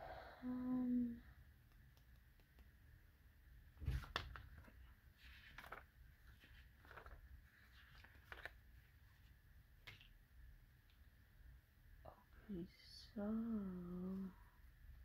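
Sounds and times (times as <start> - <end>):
book pages flipping: 3.8 - 10.2.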